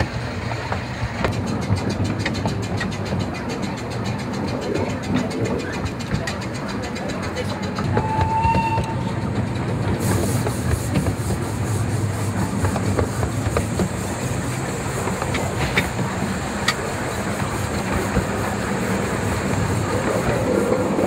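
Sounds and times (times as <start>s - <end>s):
train wheels rumbling on track: 0.0s - 21.0s
clicks over rail joints: 0.3s - 11.4s.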